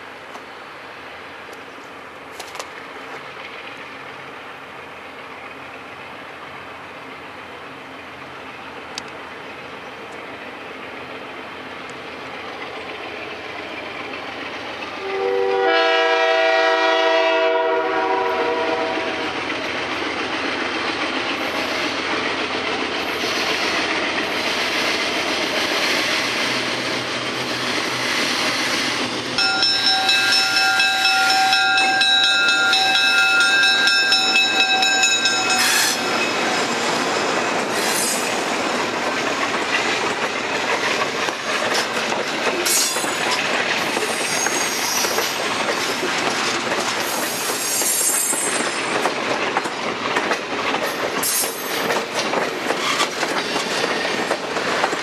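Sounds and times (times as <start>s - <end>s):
train wheels clacking on rails: 11.8s - 55.0s
train air horn: 15.0s - 19.2s.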